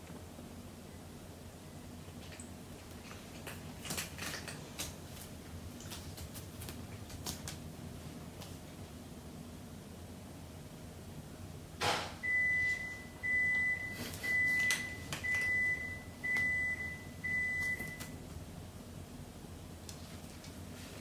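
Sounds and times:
appliance beeping: 12.2 - 18.2.

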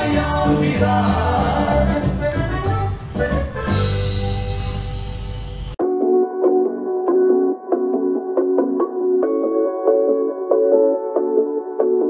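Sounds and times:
accordion music: 0.0 - 5.8.

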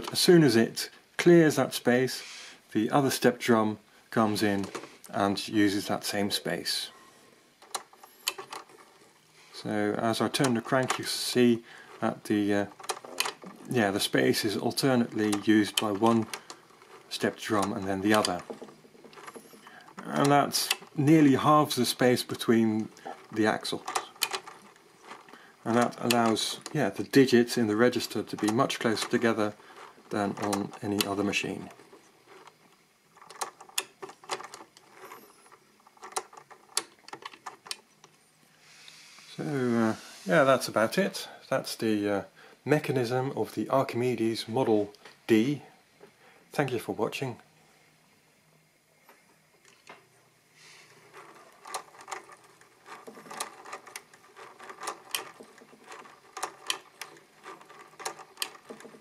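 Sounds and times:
mechanical calculator crank clicking: 7.6 - 9.1, 9.7 - 38.1, 50.8 - 59.0.

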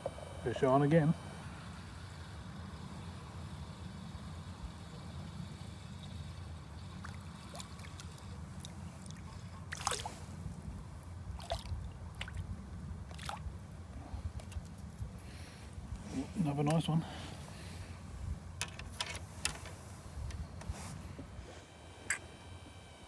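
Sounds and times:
fish splashing in water: 9.0 - 10.1.

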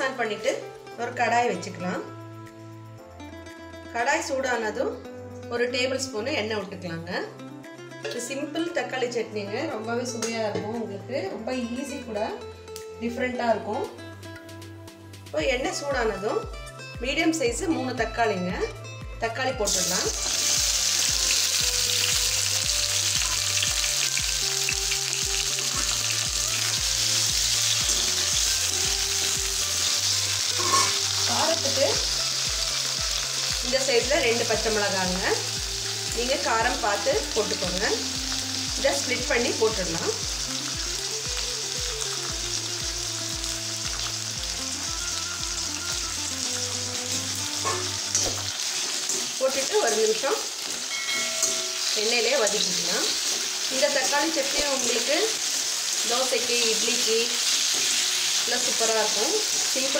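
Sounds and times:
background music with steady beat: 0.0 - 56.6
tomatoes sizzling in hot oil: 15.3 - 59.9.

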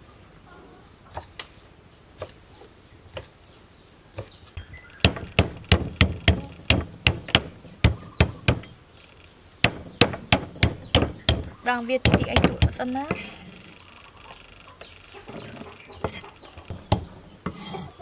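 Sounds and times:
cleaver chopping on wooden block: 5.0 - 8.7, 9.6 - 13.3, 16.0 - 17.6.

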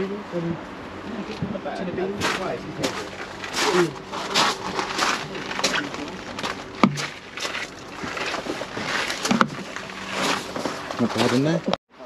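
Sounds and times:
footsteps crunching on gravel: 2.2 - 11.6.

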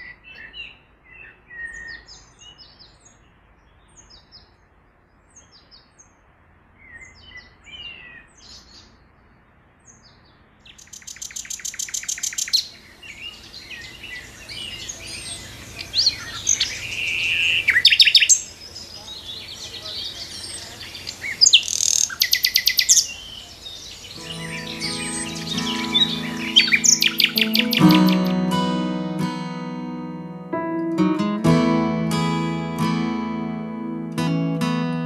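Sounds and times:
birdsong with rattling run: 10.0 - 28.2
bird chirps and whistles: 16.0 - 18.4, 21.3 - 23.1, 24.2 - 28.3.

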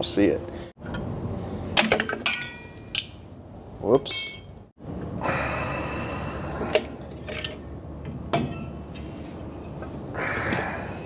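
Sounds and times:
metal brake parts clicking: 1.8 - 3.2.

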